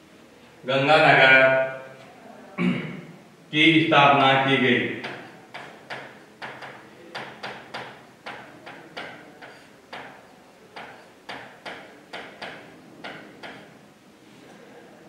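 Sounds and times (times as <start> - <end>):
marker scratching on whiteboard: 5.0 - 10.2, 10.8 - 13.6.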